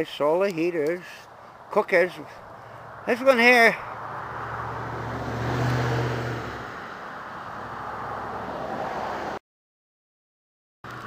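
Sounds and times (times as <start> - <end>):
outdoor background noise: 0.0 - 9.4
vehicle engine passing: 2.4 - 9.4.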